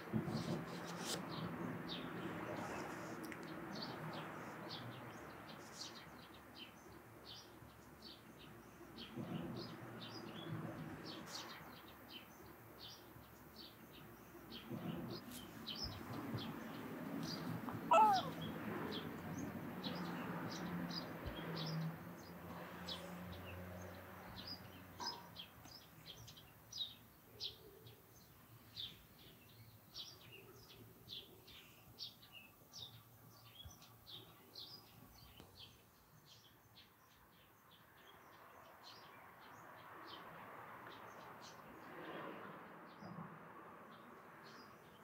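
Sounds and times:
small birds chirping: 0.2 - 40.2.

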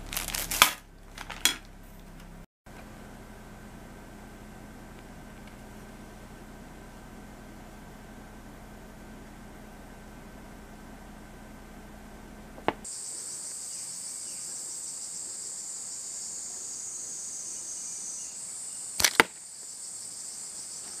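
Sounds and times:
slingshot cracks: 0.1 - 1.6, 19.0 - 19.4
high-pitched insect chorus: 12.8 - 21.0.

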